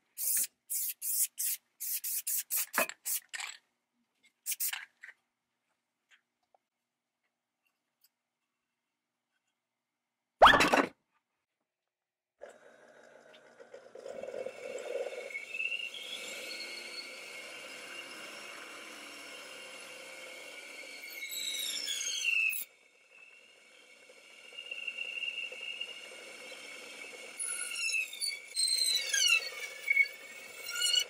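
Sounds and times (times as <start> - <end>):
band saw whining: 14.5 - 31.0
band saw cutting wood: 15.4 - 31.0.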